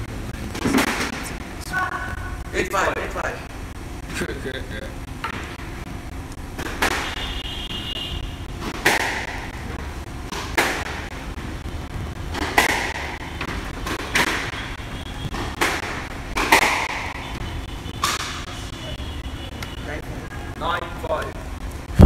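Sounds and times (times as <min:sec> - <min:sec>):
squash ball cracking off racquets and walls: 0:00.5 - 0:01.6, 0:05.2 - 0:05.9, 0:06.5 - 0:07.4, 0:08.2 - 0:18.6.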